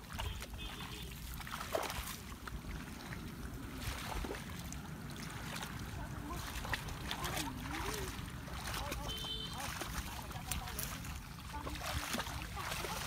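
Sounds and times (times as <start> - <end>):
muddy water splashing and sloshing: 0.0 - 13.0
steady low rumble: 1.2 - 9.0.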